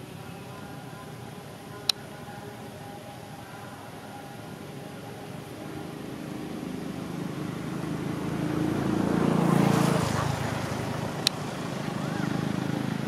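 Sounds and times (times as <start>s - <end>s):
vehicle engine passing by: 4.5s - 13.0s.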